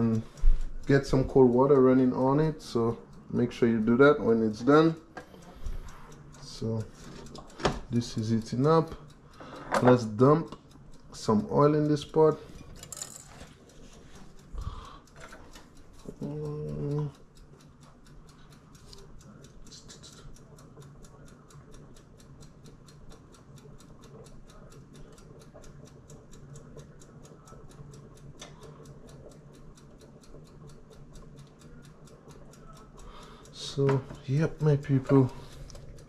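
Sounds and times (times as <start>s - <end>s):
rapid ticking: 0.0s - 36.0s
person humming: 16.1s - 17.1s.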